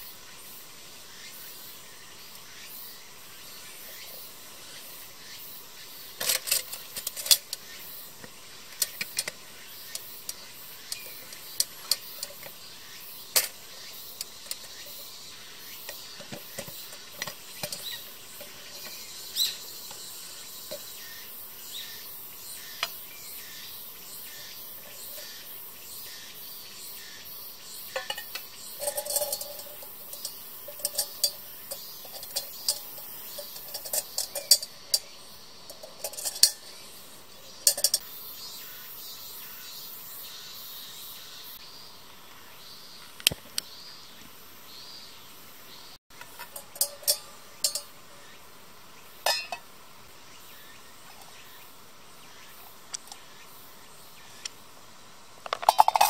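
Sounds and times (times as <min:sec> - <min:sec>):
metal lunchbox clicks and clinks: 0:06.2 - 0:07.6, 0:08.7 - 0:12.5, 0:13.3 - 0:13.6, 0:15.9 - 0:20.0, 0:27.9 - 0:36.8, 0:37.4 - 0:38.0, 0:46.2 - 0:47.9, 0:49.3 - 0:49.6, 0:55.5 - 0:56.0.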